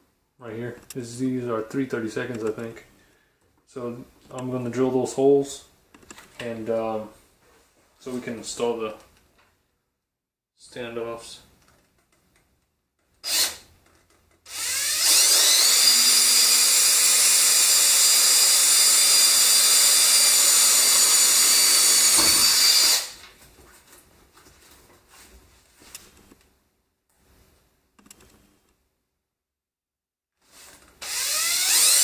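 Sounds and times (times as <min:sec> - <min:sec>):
power drill whining: 0:13.2 - 0:13.7, 0:14.5 - 0:23.2, 0:31.0 - 0:32.0.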